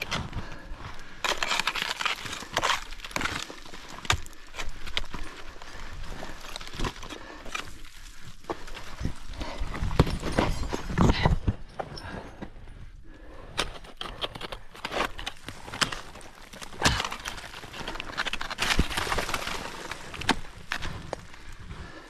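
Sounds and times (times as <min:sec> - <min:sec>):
ice axes striking rock: 0:01.2 - 0:05.4, 0:13.5 - 0:21.2.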